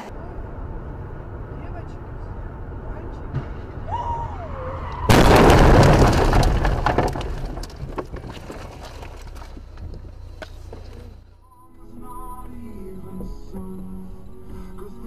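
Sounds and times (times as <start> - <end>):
car crash: 3.2 - 11.3
crunching metal and clattering debris: 5.1 - 11.4.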